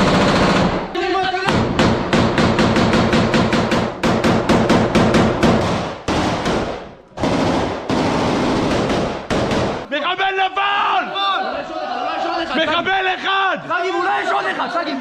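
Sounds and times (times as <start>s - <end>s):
rifles firing indoors: 0.0s - 9.9s.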